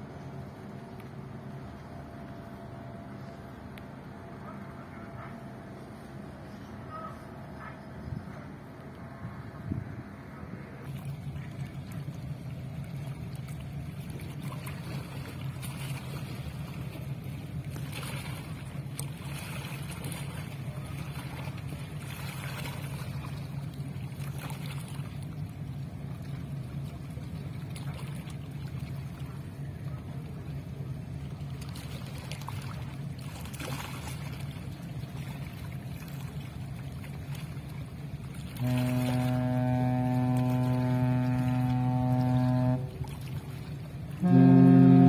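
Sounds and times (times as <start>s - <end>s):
steady low rumble: 0.0s - 45.0s
deep ship horn blast: 38.3s - 45.0s.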